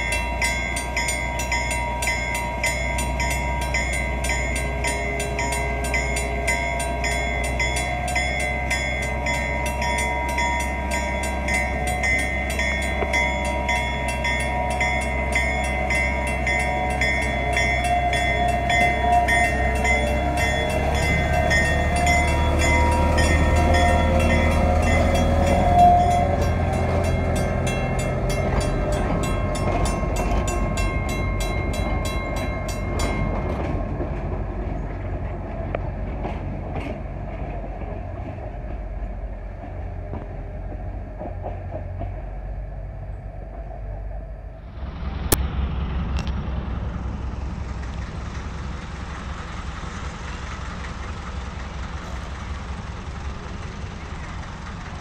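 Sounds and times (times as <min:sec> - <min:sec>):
crossing signal bell ringing: 0:00.0 - 0:34.8
diesel locomotive rumbling past: 0:00.0 - 0:55.0.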